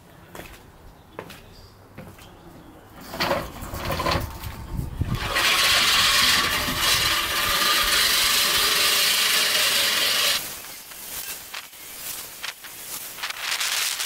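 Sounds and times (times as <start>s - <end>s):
reel mower whirring: 3.1s - 10.7s.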